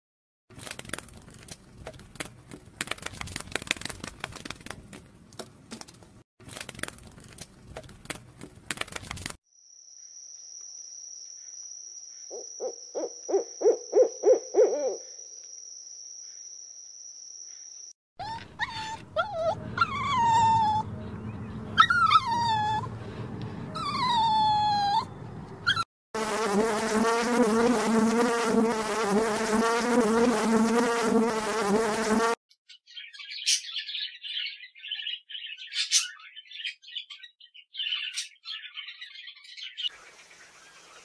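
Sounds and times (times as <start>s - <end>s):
dog whining: 18.2s - 21.0s, 21.7s - 23.0s, 23.7s - 25.9s.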